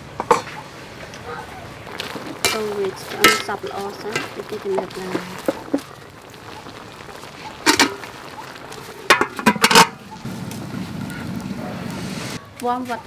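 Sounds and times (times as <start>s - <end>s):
metal cookware clinking: 2.3s - 5.8s, 7.5s - 10.2s
metal lid clanking onto wok: 9.1s - 10.0s.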